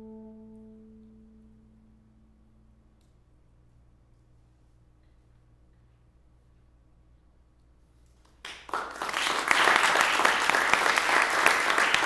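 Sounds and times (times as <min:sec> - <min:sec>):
audience applause: 0:08.4 - 0:12.0.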